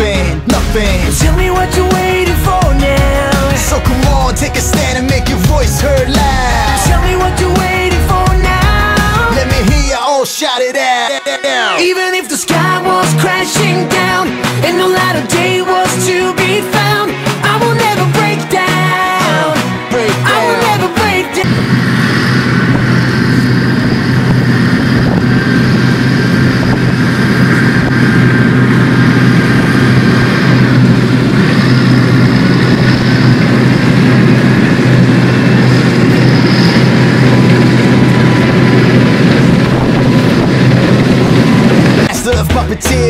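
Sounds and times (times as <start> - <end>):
tractor diesel engine running: 0.0 - 9.9, 19.8 - 43.0.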